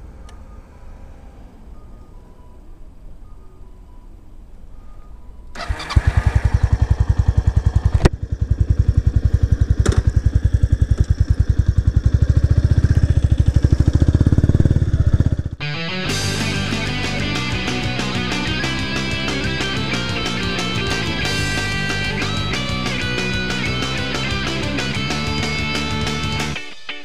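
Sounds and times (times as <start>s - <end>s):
motorcycle engine accelerating: 5.6s - 26.6s
rock music: 15.6s - 27.0s.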